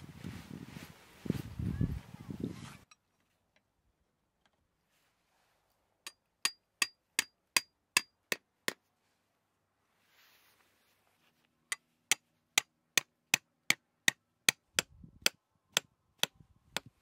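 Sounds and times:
hammer striking metal stake: 0:06.0 - 0:08.8.

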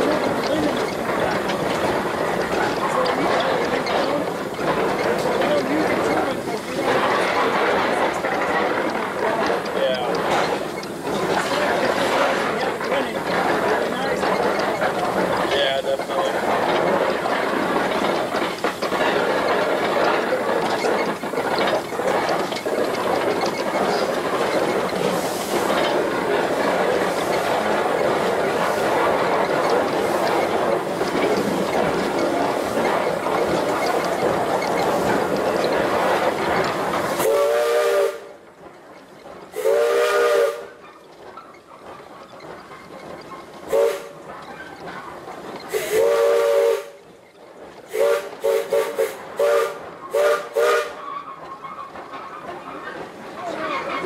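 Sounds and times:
steam hissing: 0:00.0 - 0:41.3, 0:42.0 - 0:51.0
locomotive wheels clattering on rails: 0:00.0 - 0:54.0
steam whistle blasts: 0:37.2 - 0:38.3, 0:39.6 - 0:40.7, 0:45.7 - 0:47.0, 0:47.9 - 0:51.0.

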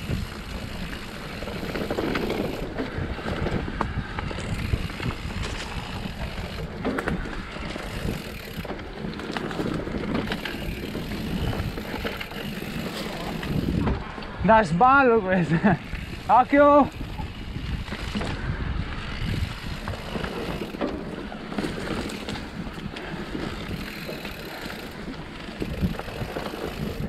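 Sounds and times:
bike clicks and rattles: 0:00.0 - 0:27.0
bike tyre noise: 0:00.0 - 0:27.0
wind buffeting microphone: 0:00.0 - 0:27.0.

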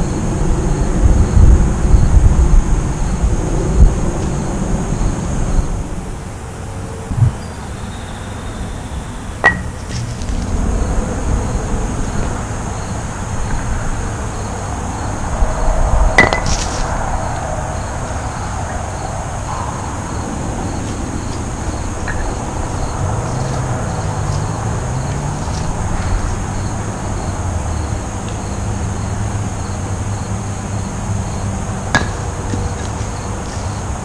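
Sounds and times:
wind rumble on microphone: 0:00.0 - 0:34.0.

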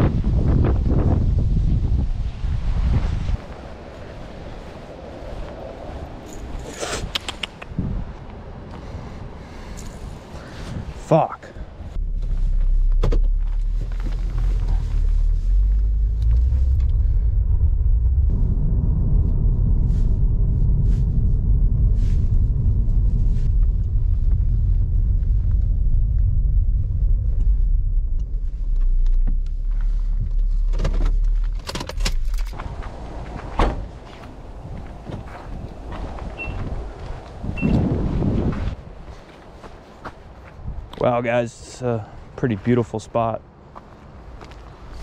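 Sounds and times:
road and engine rumble in car: 0:11.7 - 0:39.0.

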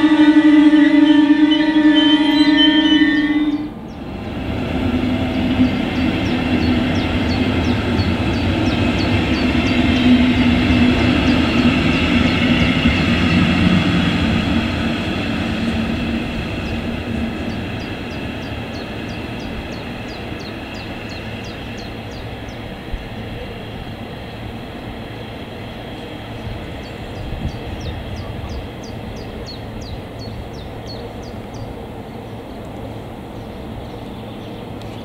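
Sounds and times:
train horn: 0:00.0 - 0:03.8
train rumbling along track: 0:00.0 - 0:35.0.

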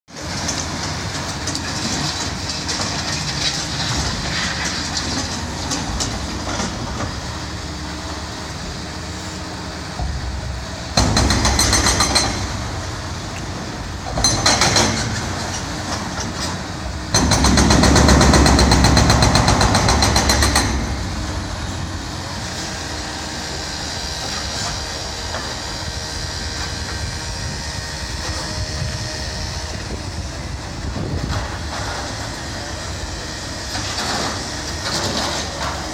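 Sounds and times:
street traffic noise: 0:00.1 - 0:35.9
hydraulic hammer pounding concrete: 0:09.9 - 0:22.7.

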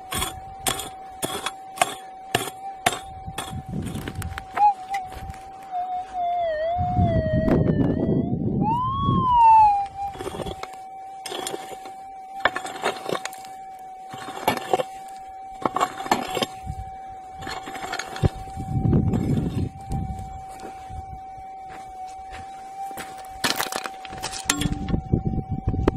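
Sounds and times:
pick striking stony ground: 0:00.0 - 0:05.3, 0:10.0 - 0:13.5, 0:14.1 - 0:14.9, 0:15.6 - 0:16.6, 0:23.0 - 0:25.0
metal detector tone: 0:00.0 - 0:25.2.

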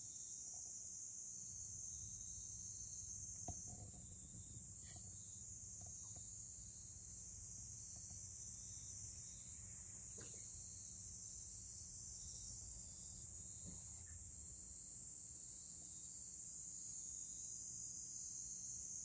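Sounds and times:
high-pitched hiss: 0:00.0 - 0:19.0
faint ticks: 0:03.4 - 0:06.4, 0:07.8 - 0:08.3
faint chirp: 0:11.8 - 0:14.3.

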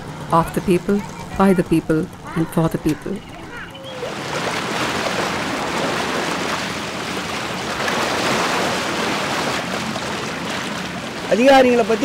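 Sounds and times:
white water rushing: 0:03.4 - 0:12.0.

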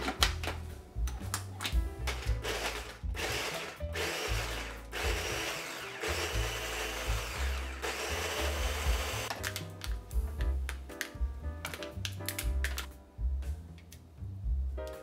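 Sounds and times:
blender blending: 0:02.4 - 0:09.3.

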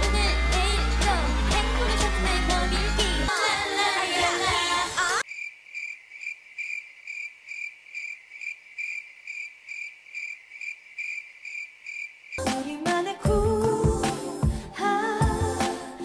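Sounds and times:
cricket chirping: 0:05.2 - 0:12.4.

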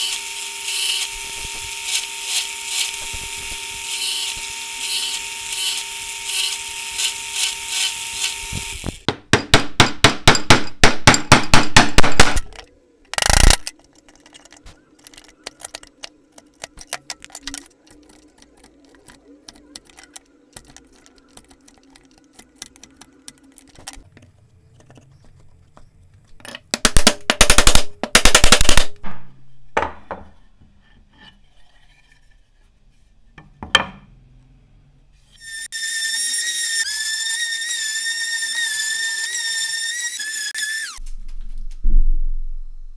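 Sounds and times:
drill press boring into wood: 0:00.0 - 0:09.0.

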